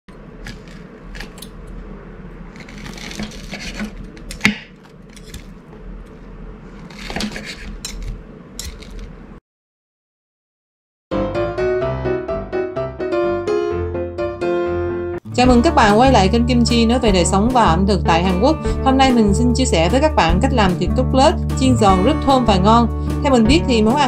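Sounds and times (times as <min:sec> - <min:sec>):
crispy breading crunching: 0:02.5 - 0:04.5
cutlery scraping a plate: 0:06.8 - 0:09.1.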